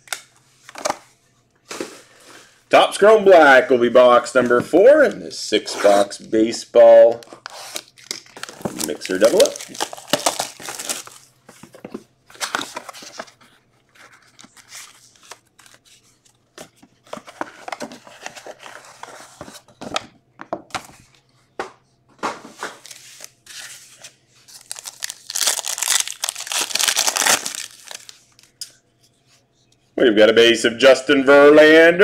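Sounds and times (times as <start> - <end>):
plastic wrap and cardboard tearing: 7.5 - 11.3, 24.5 - 28.2
foil pack tearing: 7.7 - 11.2, 24.6 - 28.1.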